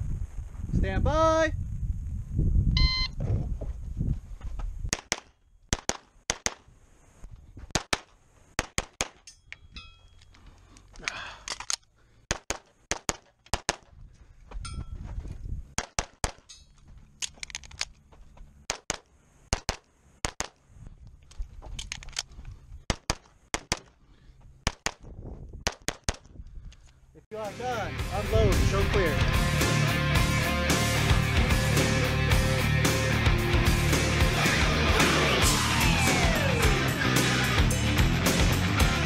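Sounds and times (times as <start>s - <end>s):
start beep: 2.8s - 3.2s.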